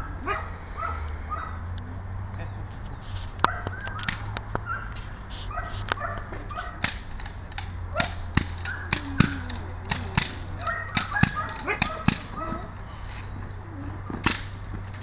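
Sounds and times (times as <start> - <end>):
dog barking: 0.0 - 1.6, 3.4 - 6.9, 7.9 - 12.8.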